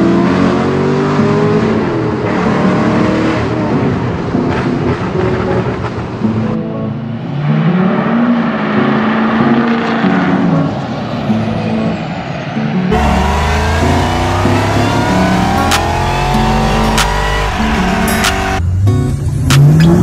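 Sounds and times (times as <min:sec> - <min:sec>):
truck engine: 0:00.0 - 0:20.0
supercharger whine rising: 0:11.6 - 0:18.6
car engine deep rumble: 0:12.9 - 0:20.0.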